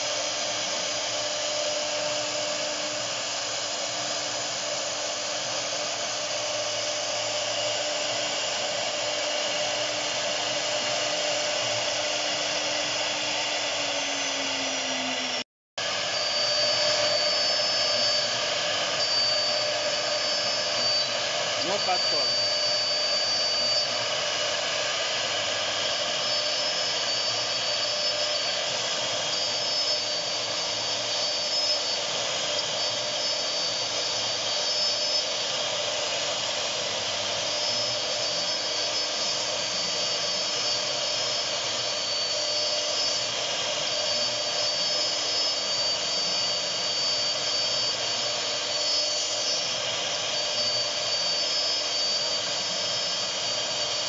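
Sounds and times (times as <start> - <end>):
cnc router cutting wood: 0.0 - 54.0.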